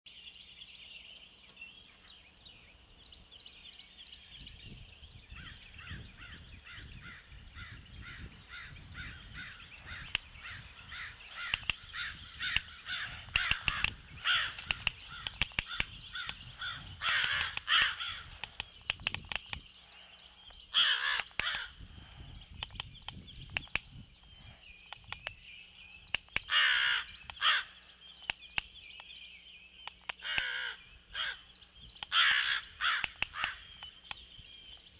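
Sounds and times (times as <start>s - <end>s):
crows cawing: 5.4s - 18.6s, 20.7s - 21.8s, 26.4s - 27.8s, 30.2s - 31.5s, 32.1s - 33.8s.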